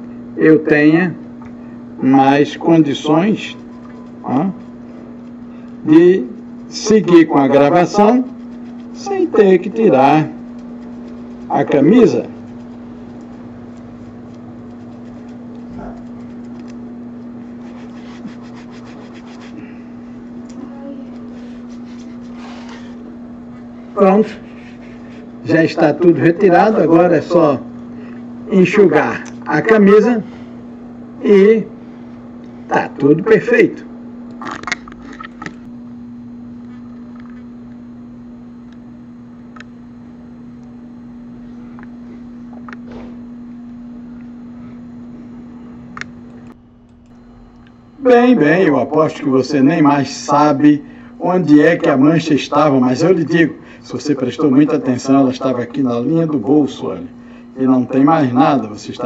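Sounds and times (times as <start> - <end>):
electrical fan hum: 0.0 - 59.0
fingers scratching on fabric: 3.4 - 16.7, 17.4 - 19.6.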